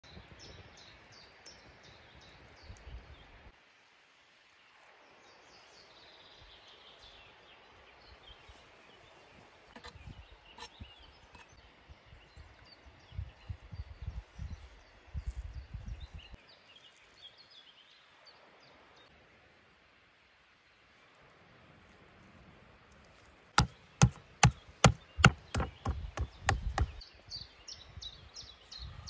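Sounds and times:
wind rumble on microphone: 0.0s - 0.9s, 11.9s - 16.4s, 25.7s - 29.0s
birds chirping and trilling: 23.6s - 29.0s.

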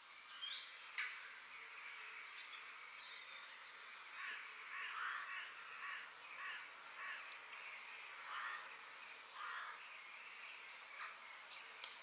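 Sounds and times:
small birds chirping: 0.0s - 12.0s
bird rough calls: 4.2s - 7.3s.

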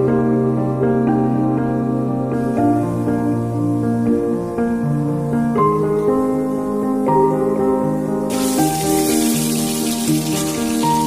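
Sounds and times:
soft instrumental music: 0.0s - 11.0s
hot oil sizzling: 8.3s - 11.0s.

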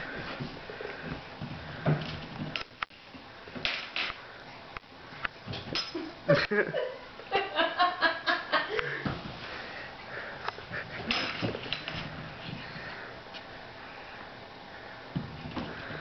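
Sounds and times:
woman laughing: 6.0s - 9.1s.

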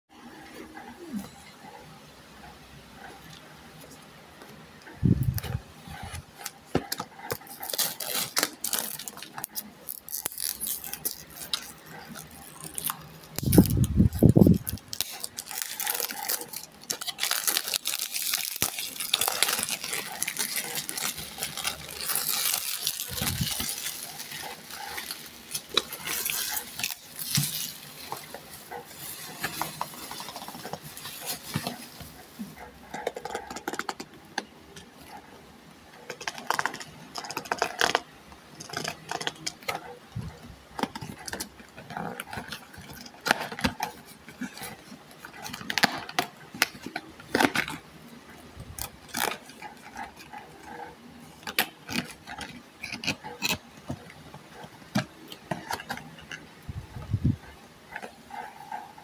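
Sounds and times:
shrink wrap crinkling: 5.0s - 34.0s, 36.0s - 57.0s.

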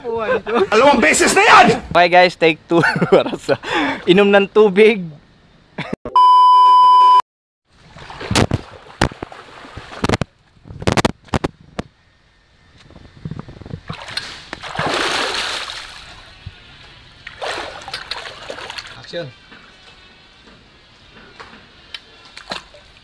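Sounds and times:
electronic beep: 6.1s - 7.2s
water splashing around swimmer: 7.7s - 10.3s, 13.9s - 16.3s, 17.3s - 19.0s.

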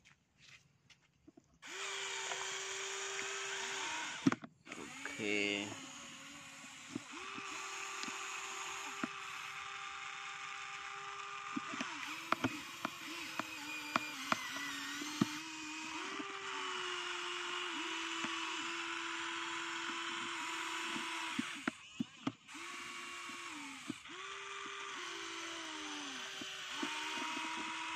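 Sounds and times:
electric motors whining: 1.6s - 27.9s
sharp clicks and knocks: 4.1s - 4.6s, 6.8s - 8.2s, 11.2s - 15.4s, 19.8s - 22.4s.

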